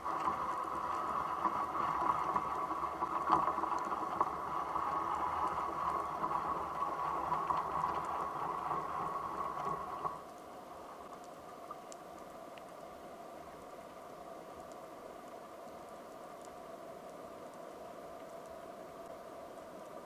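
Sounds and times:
underwater rushing hiss: 0.0s - 10.2s
faint ticks: 0.0s - 20.0s.

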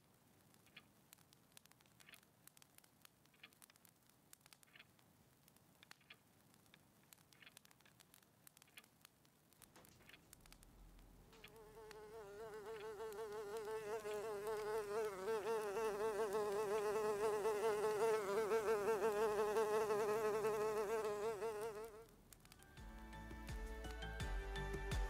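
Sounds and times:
insect buzzing: 11.4s - 22.2s.

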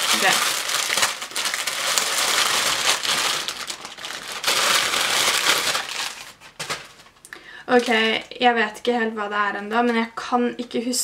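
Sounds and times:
plastic bag rustling: 0.0s - 8.3s
plastic mailer bag crinkling: 0.0s - 8.3s.

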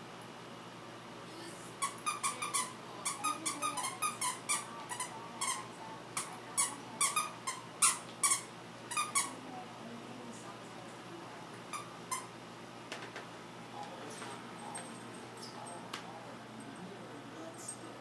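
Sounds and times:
squeaky toy squeaking: 1.8s - 5.6s, 6.6s - 9.3s.

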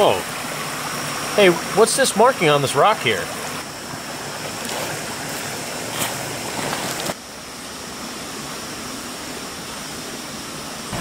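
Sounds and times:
creek running over rocks: 0.0s - 11.0s
footsteps on gravel: 4.6s - 7.2s.

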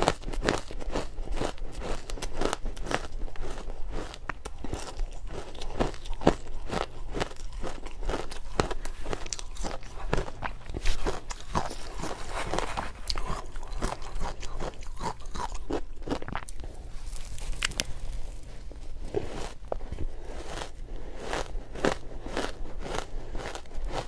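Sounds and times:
chewing crunchy shaved ice: 0.0s - 24.0s.

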